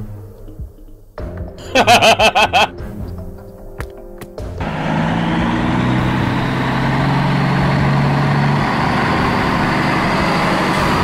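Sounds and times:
truck engine running: 0:04.4 - 0:11.0.

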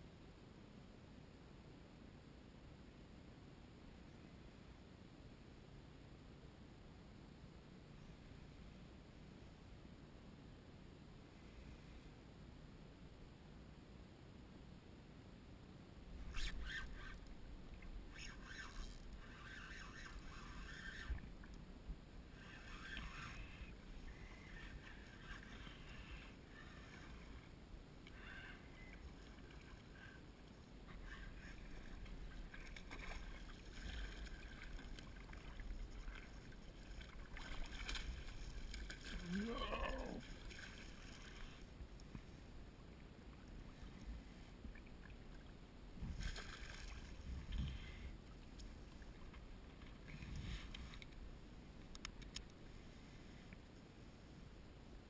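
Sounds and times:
water splashing and lapping: 0:22.3 - 0:41.8, 0:44.6 - 0:51.2
wind rumbling on microphone: 0:45.9 - 0:48.1.

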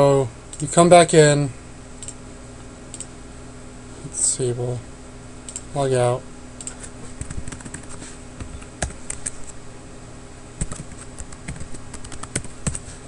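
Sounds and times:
computer keyboard typing: 0:06.6 - 0:09.5, 0:10.6 - 0:12.9.

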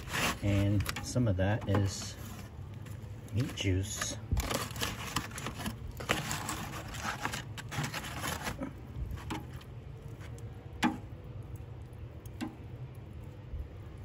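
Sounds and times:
rustling handling noise: 0:00.0 - 0:10.5.

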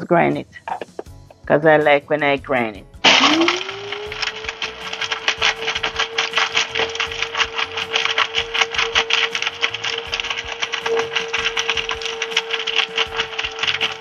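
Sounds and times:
berries rattling against blade: 0:03.0 - 0:14.0
spice grinder motor whine: 0:03.0 - 0:14.0.

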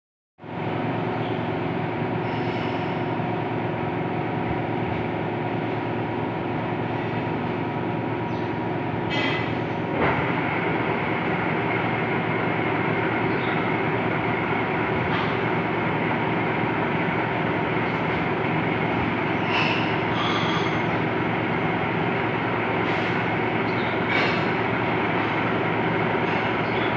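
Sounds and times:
high-pitched machine whine: 0:00.5 - 0:26.9
lathe running: 0:09.7 - 0:26.9.

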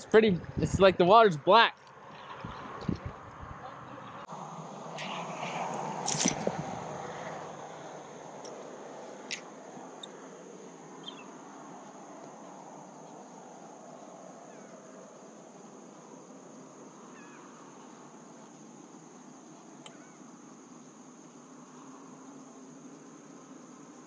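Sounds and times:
faint chirps: 0:11.0 - 0:11.4.

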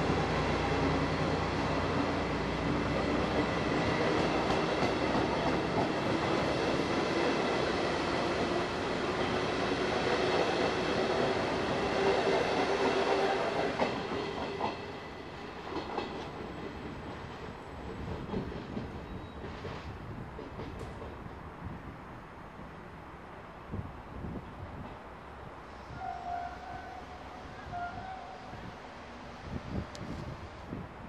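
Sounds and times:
train wheels clattering on rails: 0:00.0 - 0:21.3.

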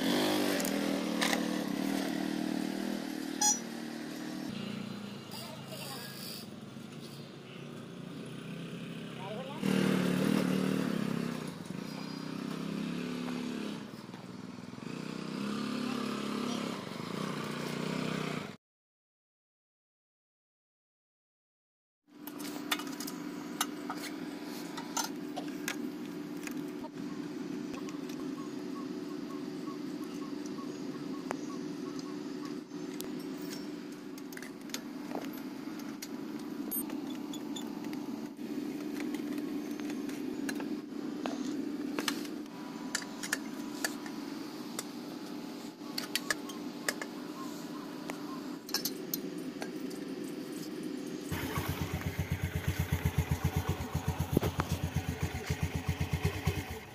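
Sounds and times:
small engine idling: 0:00.0 - 0:17.9, 0:51.2 - 0:56.9.

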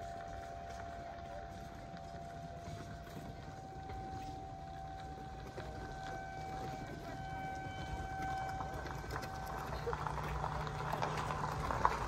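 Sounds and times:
distant warning sirens: 0:00.0 - 0:12.0.

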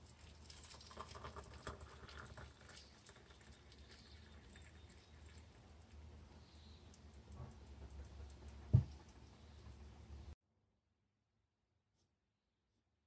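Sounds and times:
water trickling into mug: 0:00.0 - 0:07.7.

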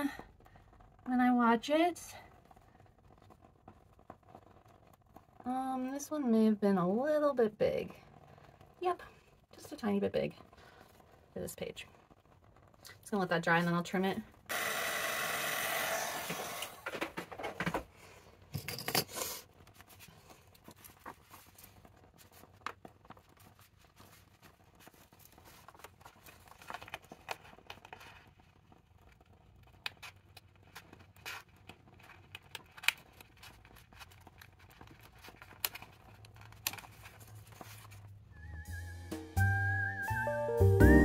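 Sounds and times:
paper rustling: 0:19.1 - 0:38.2.

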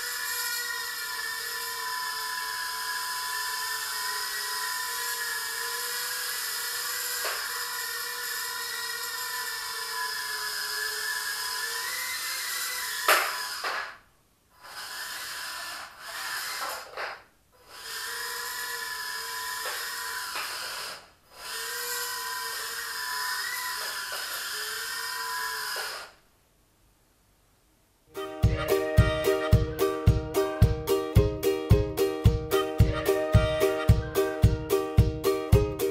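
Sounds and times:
drone motors whining: 0:00.0 - 0:13.8, 0:14.6 - 0:17.0, 0:17.6 - 0:26.2.

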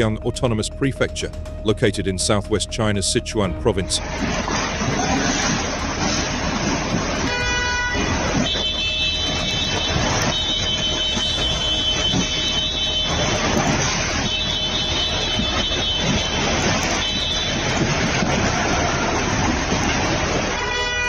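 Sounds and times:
vehicle horn honking: 0:07.2 - 0:21.0.

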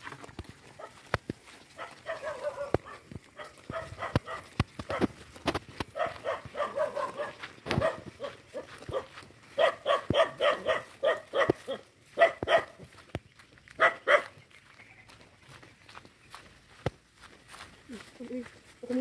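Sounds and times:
footsteps on dirt path: 0:00.0 - 0:19.0
dog barking: 0:00.8 - 0:01.0, 0:01.8 - 0:05.1, 0:05.9 - 0:12.8, 0:13.8 - 0:14.4.

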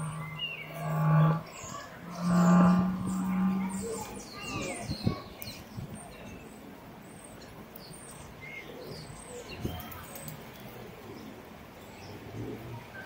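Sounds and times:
small birds chirping: 0:00.0 - 0:10.4
city street hum: 0:00.0 - 0:13.0.

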